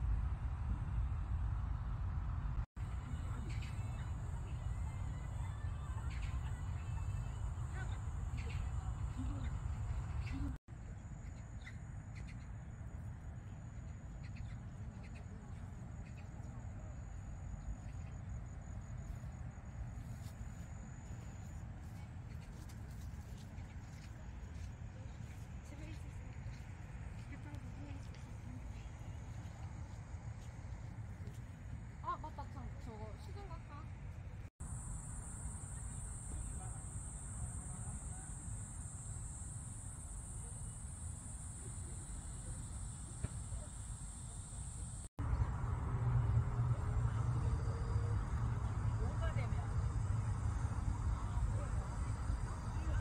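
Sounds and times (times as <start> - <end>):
high insect trill: 34.6 - 53.0.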